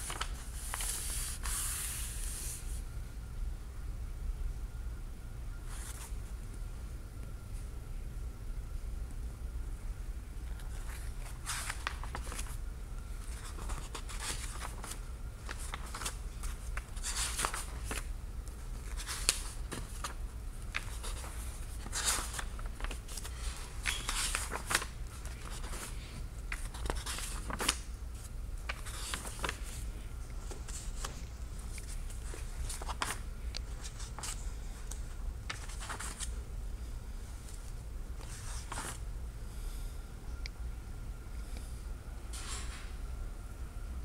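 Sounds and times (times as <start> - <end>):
book pages rustling: 0.0 - 2.6, 10.6 - 12.6, 13.2 - 36.3, 37.4 - 39.0.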